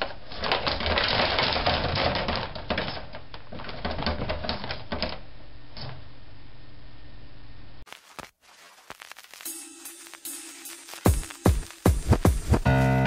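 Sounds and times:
cables clicking and rustling: 0:00.0 - 0:05.2.

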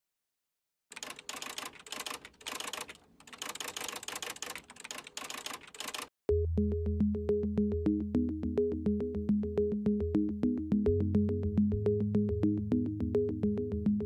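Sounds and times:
keyboard typing clicks: 0:00.9 - 0:06.1.

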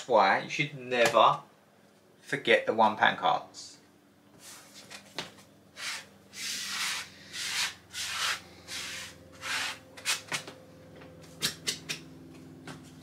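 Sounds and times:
coin scraping scratch card: 0:05.8 - 0:10.4.

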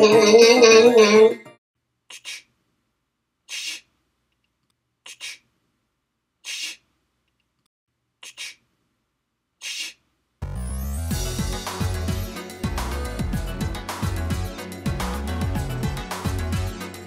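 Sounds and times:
breathy hissing puffs: 0:02.1 - 0:02.5, 0:03.5 - 0:04.0, 0:05.0 - 0:05.5, 0:06.4 - 0:06.9, 0:08.2 - 0:08.7, 0:09.6 - 0:10.0.

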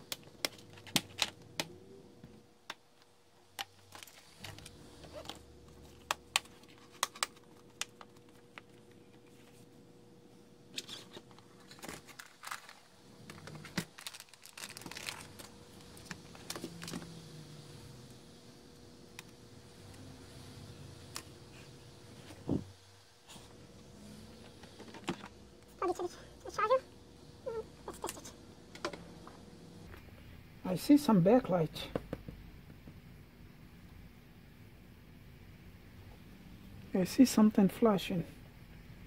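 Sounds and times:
faint steady hum: 0:00.0 - 0:39.0
rustling handling noise: 0:03.6 - 0:09.7, 0:10.7 - 0:17.1.

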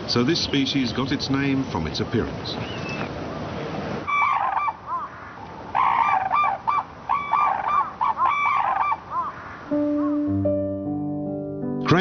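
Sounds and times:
cranes calling: 0:04.1 - 0:10.4.

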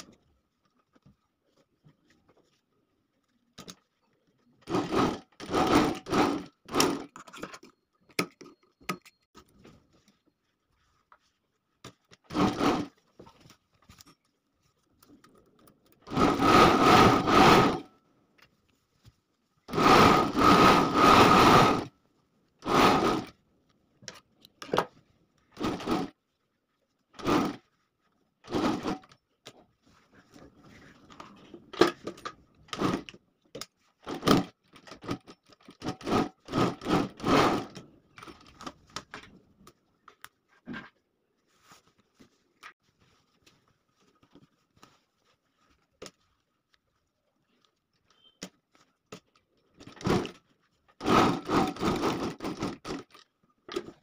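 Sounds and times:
sewing machine stitching: 0:04.6 - 0:07.2, 0:12.3 - 0:13.0, 0:16.0 - 0:17.9, 0:19.7 - 0:21.9, 0:22.6 - 0:23.4, 0:25.5 - 0:26.2, 0:27.2 - 0:27.7, 0:28.4 - 0:29.1, 0:32.7 - 0:33.1, 0:34.0 - 0:38.7, 0:49.8 - 0:50.4, 0:51.0 - 0:53.2.

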